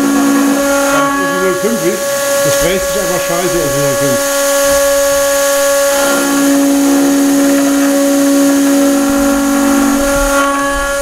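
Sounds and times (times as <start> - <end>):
milling machine whining: 0.0 - 11.0.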